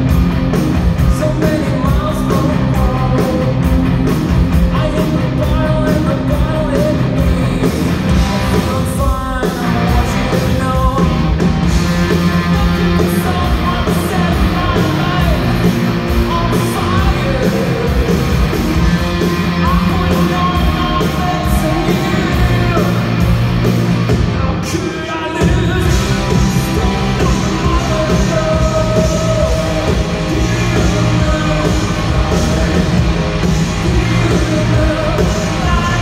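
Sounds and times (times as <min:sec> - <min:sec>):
live rock band: 0:00.0 - 0:36.0
person singing: 0:12.4 - 0:23.2, 0:24.3 - 0:36.0.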